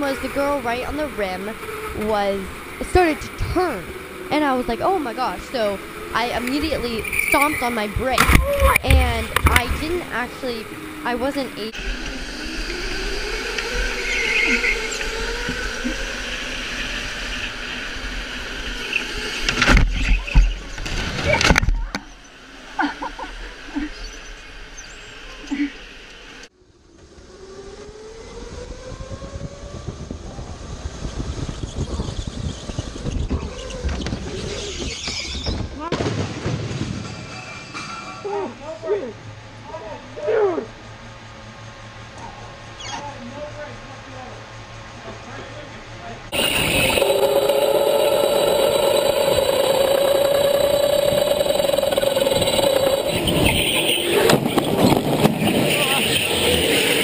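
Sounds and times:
electric motor whine: 0.0s - 20.8s, 46.3s - 57.0s
track and wind noise: 0.0s - 35.9s, 36.5s - 57.0s
kart rumble and rattle: 0.0s - 57.0s.

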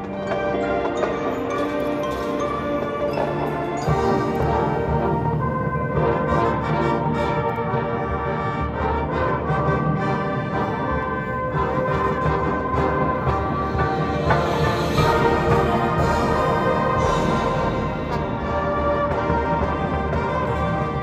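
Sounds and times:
brass holding chords: 0.0s - 21.0s
percussion: 0.0s - 21.0s
timpani: 0.0s - 21.0s.

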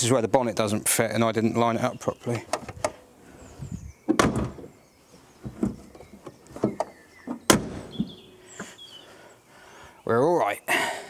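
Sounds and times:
man talking: 0.0s - 2.5s, 10.0s - 11.0s
car bonnet slamming: 4.1s - 4.8s, 6.6s - 8.3s.

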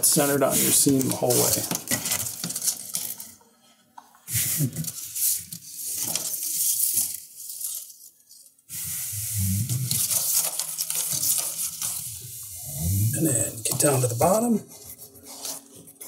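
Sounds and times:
tape tearing peel: 4.3s - 8.0s, 8.7s - 12.4s.

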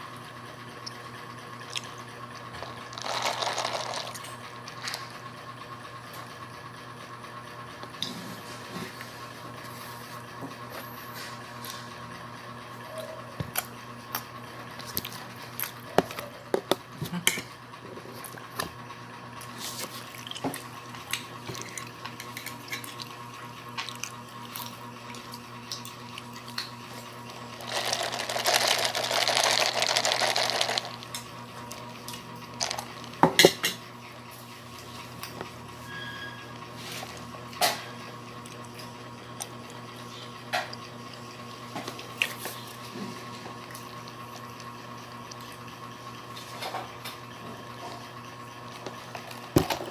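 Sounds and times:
steady hum: 19.4s - 36.0s.

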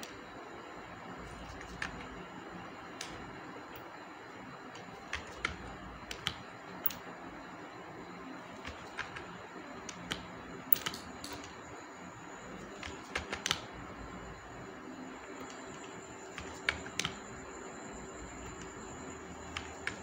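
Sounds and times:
keyboard and mouse clicks: 1.4s - 2.1s, 4.8s - 7.0s, 8.6s - 9.3s, 9.9s - 11.5s, 12.8s - 13.7s, 15.4s - 17.2s.

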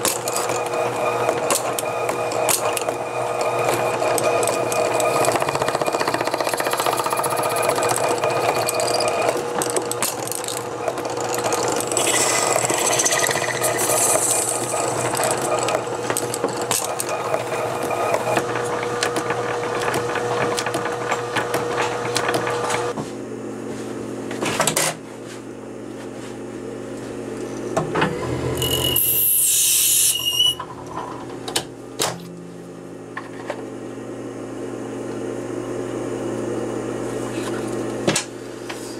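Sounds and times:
lathe motor hum: 0.0s - 23.0s
hand scraper scraping: 11.2s - 18.5s
high-pitched cutting screech: 11.9s - 15.8s, 28.5s - 30.6s.

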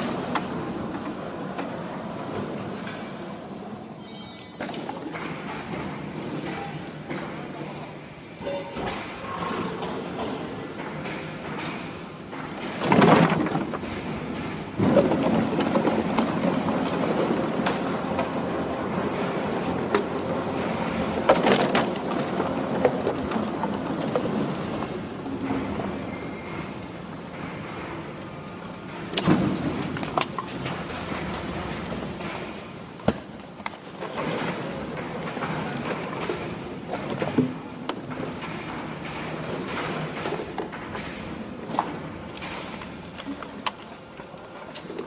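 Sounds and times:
plastic bottles clattering: 12.5s - 25.8s.

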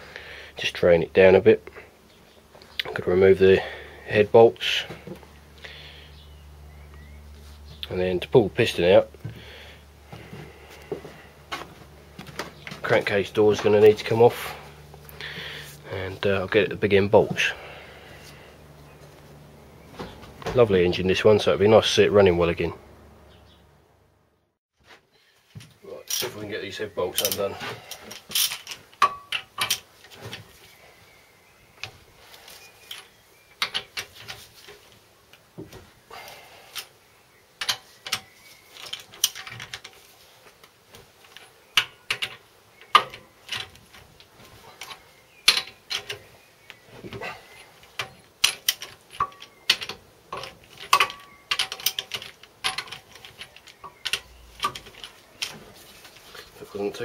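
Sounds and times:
steel tools clinking: 27.1s - 29.9s, 47.2s - 56.4s.

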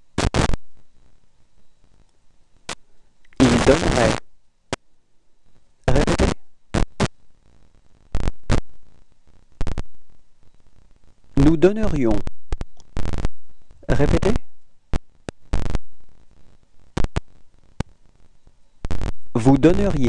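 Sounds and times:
sharp pops: 0.2s - 0.9s, 1.9s - 4.9s, 5.9s - 7.2s, 8.0s - 10.2s, 11.8s - 19.4s
person speaking: 3.3s - 4.2s, 5.9s - 6.4s, 11.4s - 12.3s, 13.8s - 14.6s, 19.3s - 20.0s.

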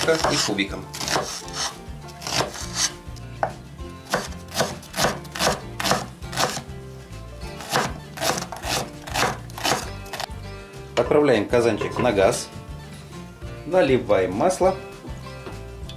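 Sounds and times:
knife chopping on wooden board: 0.0s - 6.6s, 7.6s - 10.3s.

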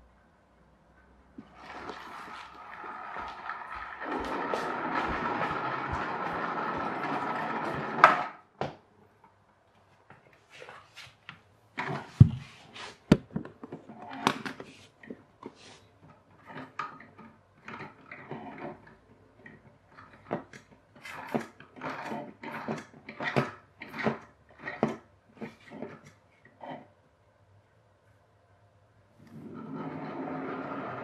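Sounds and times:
axle scraping and clicking: 16.0s - 26.9s.

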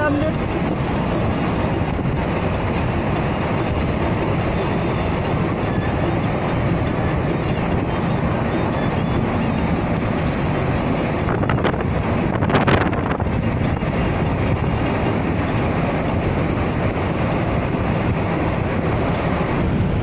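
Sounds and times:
tyre roar and engine: 0.0s - 20.0s
wind buffeting microphone: 0.0s - 20.0s.

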